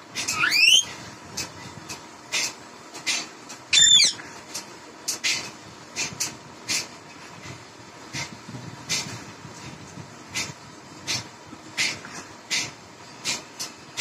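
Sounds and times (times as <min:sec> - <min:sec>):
parakeet giving sharp high calls: 0:00.3 - 0:00.9, 0:03.7 - 0:04.2.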